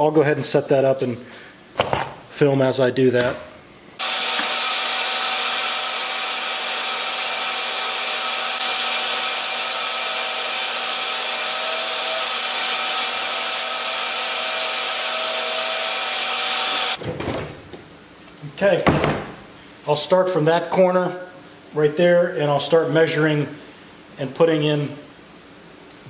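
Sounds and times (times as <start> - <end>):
cordless drill boring into wood: 4.0 - 17.0
shop vacuum running: 4.0 - 17.0.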